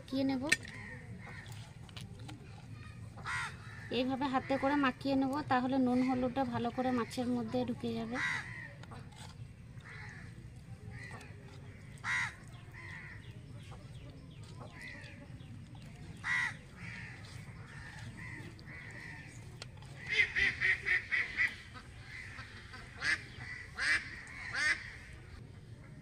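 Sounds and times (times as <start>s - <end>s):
birds calling: 5.9s - 25.4s.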